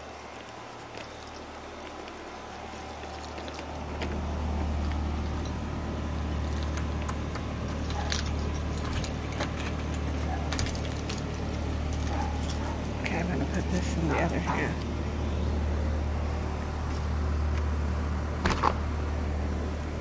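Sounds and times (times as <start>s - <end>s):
air conditioner hum: 0.0s - 20.0s.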